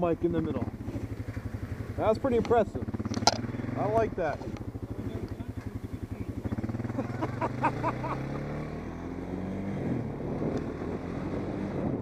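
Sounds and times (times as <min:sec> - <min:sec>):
atv engine accelerating: 0:00.0 - 0:12.0
wind noise on microphone: 0:09.8 - 0:12.0.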